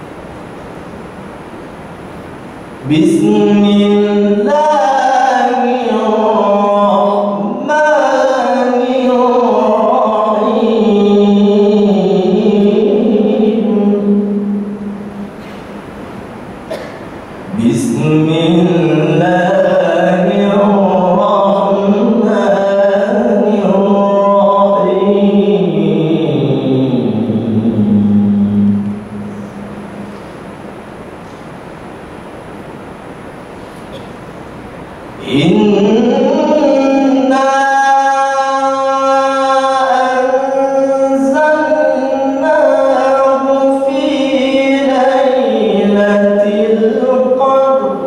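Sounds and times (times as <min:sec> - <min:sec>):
man reciting melodically: 0:02.8 - 0:15.0, 0:17.5 - 0:29.4, 0:35.1 - 0:48.0.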